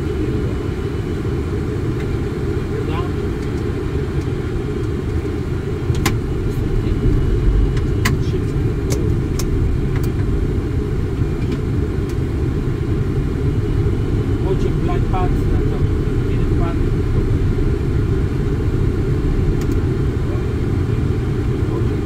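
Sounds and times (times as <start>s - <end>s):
airflow and engine rumble: 0.0s - 22.0s
sharp cockpit clicks: 5.9s - 6.2s, 8.9s - 10.3s, 19.6s - 19.8s.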